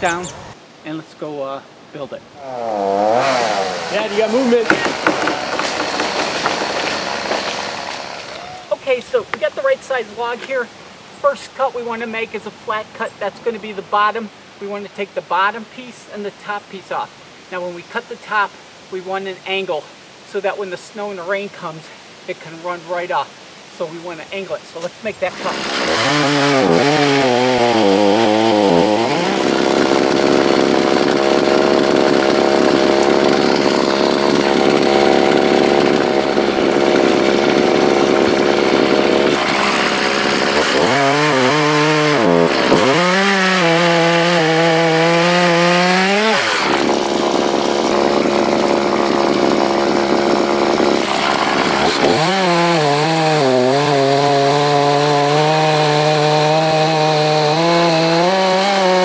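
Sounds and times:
chainsaw cutting log: 2.5s - 8.6s, 24.8s - 59.0s.

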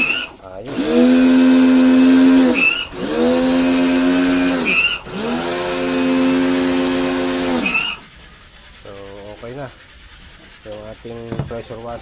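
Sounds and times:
pressure washer motor humming: 0.0s - 12.0s
machine squeak: 2.5s - 3.0s.

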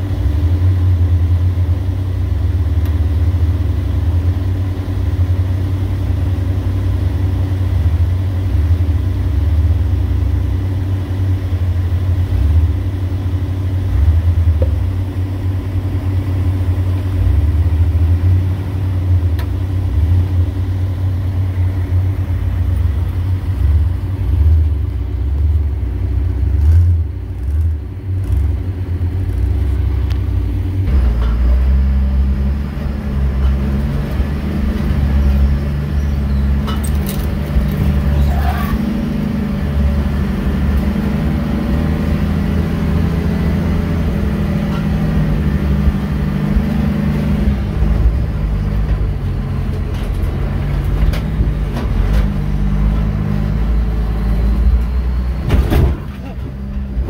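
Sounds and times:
truck engine low rumble: 0.0s - 57.0s
vehicle engine from aboard: 0.0s - 57.0s.

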